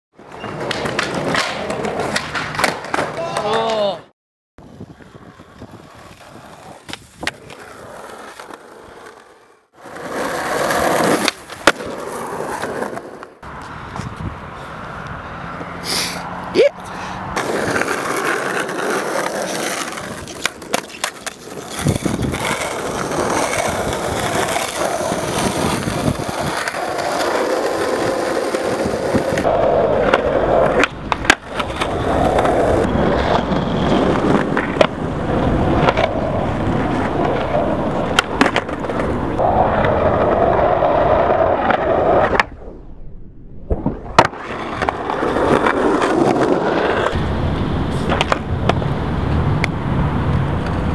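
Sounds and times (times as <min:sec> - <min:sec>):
skateboard tail clacks: 0:00.2 - 0:03.9, 0:04.9 - 0:09.0, 0:09.8 - 0:14.2, 0:17.4 - 0:40.7, 0:43.7 - 0:47.2, 0:47.9 - 0:48.8
skateboard wheels rolling on asphalt: 0:00.2 - 0:04.0, 0:04.6 - 0:50.9.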